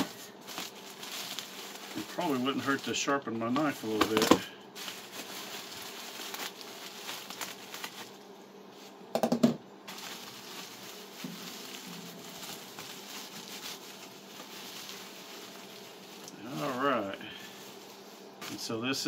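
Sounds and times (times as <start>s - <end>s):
bubble wrap crackling: 0.0s - 9.0s, 9.9s - 19.0s
bubble wrap crinkling: 0.0s - 9.0s, 9.9s - 19.0s
knife cutting bubble wrap: 3.6s - 8.1s.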